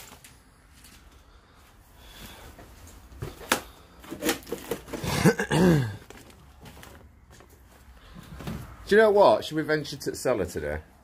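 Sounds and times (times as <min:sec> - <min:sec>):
footsteps on debris: 0:06.0 - 0:08.6.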